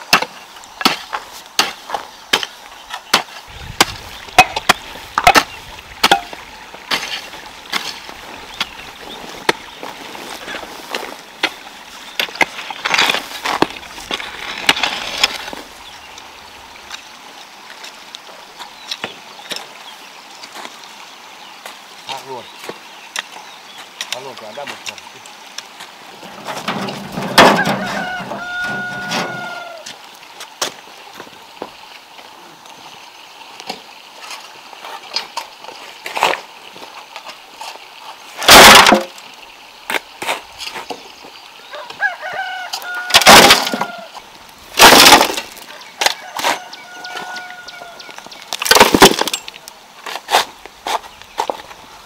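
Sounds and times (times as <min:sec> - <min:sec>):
rural background: 0:00.0 - 0:52.0
rooster crowing: 0:27.3 - 0:29.8, 0:41.7 - 0:44.2, 0:45.7 - 0:48.2.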